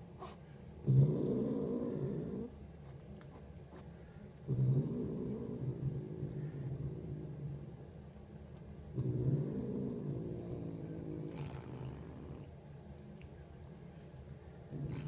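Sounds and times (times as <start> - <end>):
cat purring: 0.2 - 2.6, 4.4 - 8.0, 8.9 - 12.6, 14.6 - 15.0.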